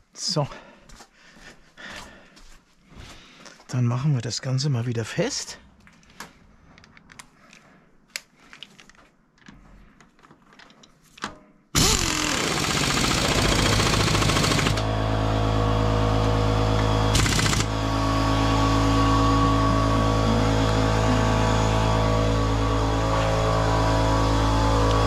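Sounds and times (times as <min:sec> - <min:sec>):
steady machine hum: 0:12.8 - 0:25.0
impact wrench rattling: 0:17.1 - 0:17.7.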